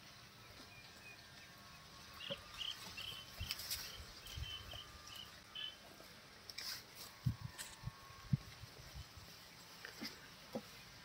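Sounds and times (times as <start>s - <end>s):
bird chirping: 0.4s - 5.8s.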